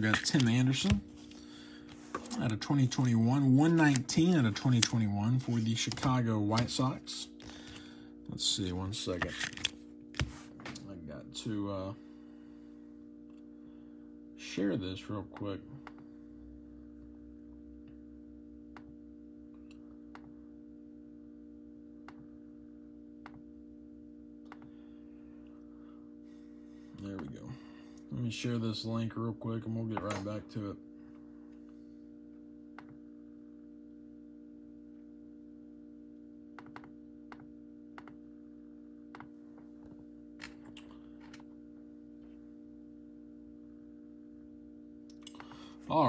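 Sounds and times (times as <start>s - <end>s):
steady low hum: 0.0s - 46.0s.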